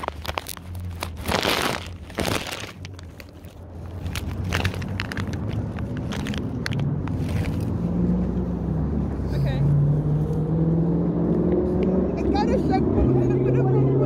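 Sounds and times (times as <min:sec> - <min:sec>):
phone handling in grass: 0:00.0 - 0:07.7
passing vehicle engine hum: 0:00.0 - 0:14.0.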